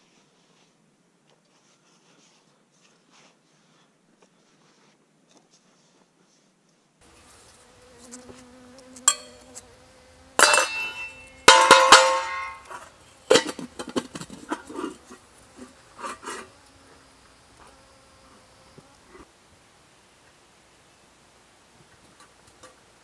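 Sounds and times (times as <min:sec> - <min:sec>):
faint steady hum: 0:07.0 - 0:23.0
metal pot scraping and knocking: 0:10.4 - 0:16.5.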